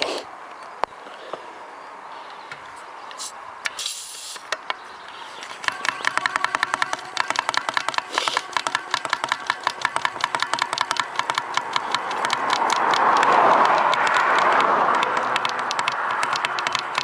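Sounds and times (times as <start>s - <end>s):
hand pump strokes clicking: 3.1s - 17.0s.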